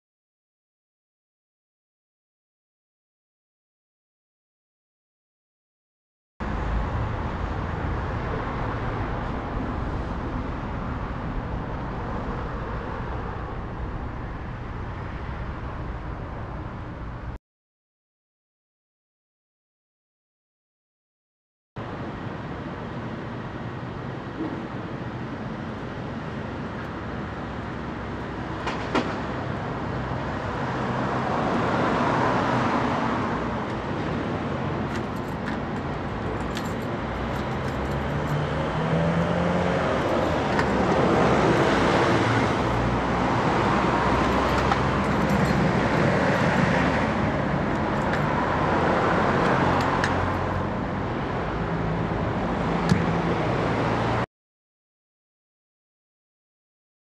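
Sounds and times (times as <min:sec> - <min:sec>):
cars passing: 0:06.4 - 0:17.4, 0:21.9 - 0:54.3
steady engine hum: 0:06.4 - 0:17.4, 0:21.8 - 0:54.2.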